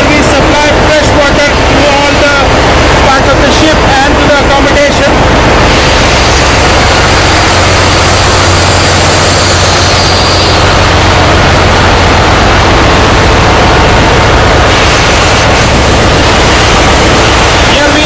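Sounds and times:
low machinery hum: 0.0 - 18.0
engine-room machinery hiss: 5.4 - 18.0.

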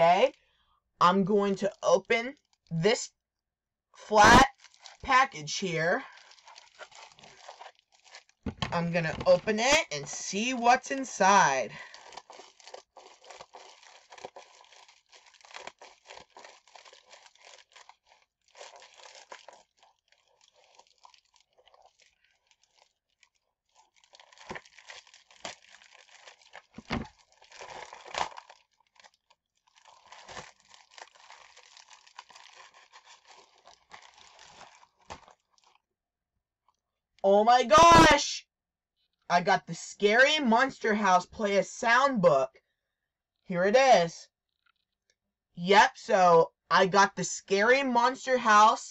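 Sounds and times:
package being torn and crinkled: 4.5 - 5.0, 6.0 - 9.4, 11.8 - 35.8.

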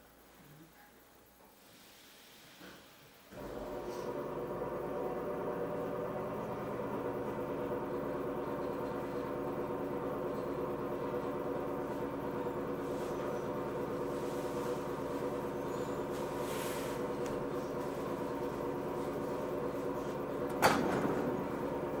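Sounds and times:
train machinery hum: 2.3 - 22.0.

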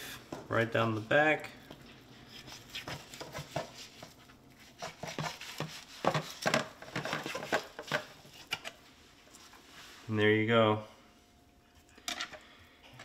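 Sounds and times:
knife tapping and scraping board: 2.4 - 4.2, 4.8 - 8.7.

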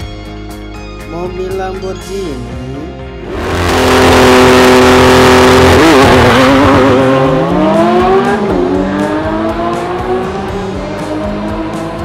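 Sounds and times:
sports car engine accelerating hard: 3.2 - 12.0.

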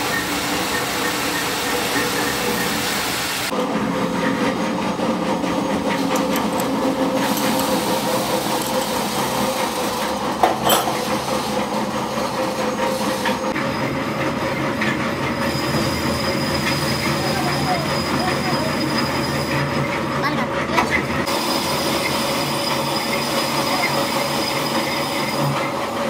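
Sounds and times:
metal lathe humming: 0.0 - 26.0
tool cutting thread in steel: 5.7 - 11.7.

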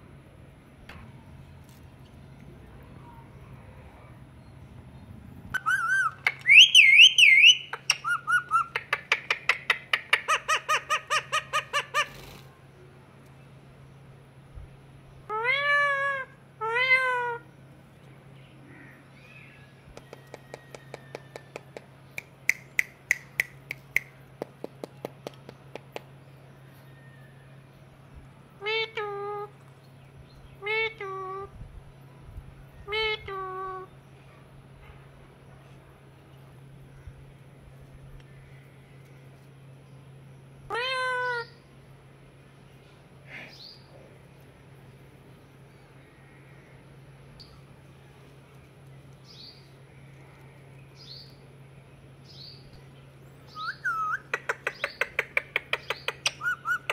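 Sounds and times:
parakeet calling: 5.6 - 12.3, 53.5 - 56.9.

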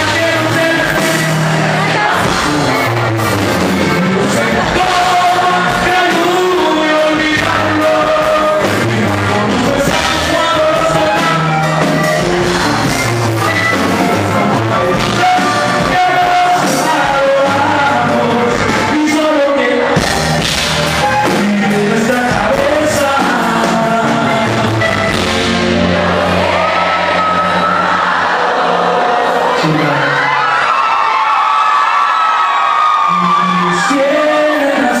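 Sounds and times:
sousaphone bass line: 0.0 - 18.9, 20.0 - 26.1
person singing: 0.0 - 20.3, 20.9 - 25.0
accordion: 0.0 - 28.5.

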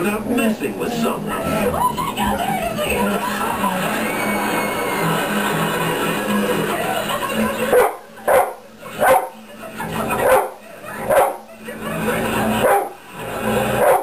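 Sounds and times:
television sound: 0.0 - 14.0
dog barking: 7.7 - 9.4, 10.2 - 11.5, 12.6 - 13.0, 13.8 - 14.0.

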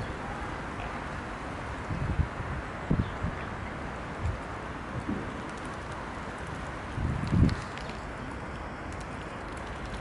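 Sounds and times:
steady outdoor hiss: 0.0 - 10.0
swans dabbling wet clicks: 5.3 - 10.0.

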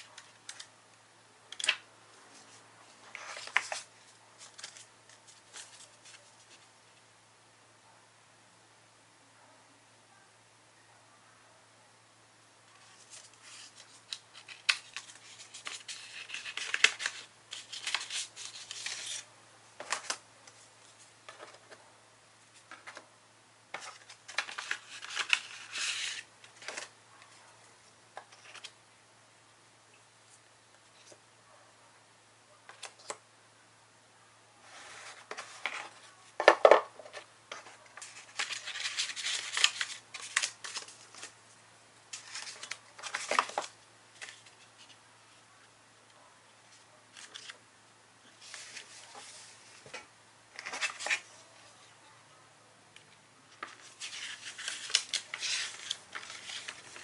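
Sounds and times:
paper rustling and sliding: 2.4 - 6.7, 12.8 - 19.2, 23.7 - 26.9, 34.6 - 36.0, 48.4 - 50.0, 53.6 - 57.0.

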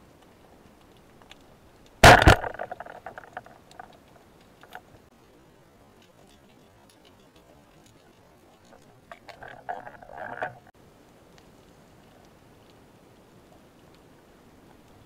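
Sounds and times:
faint clicks: 0.1 - 5.1, 6.0 - 15.0
spear shaft rattling clatter: 2.0 - 3.9, 9.1 - 10.7.

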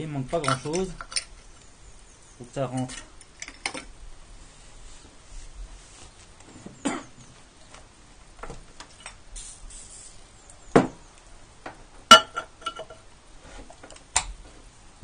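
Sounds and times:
aerosol can spraying: 9.4 - 10.2
hard objects clinking on ceramic: 12.1 - 13.0.

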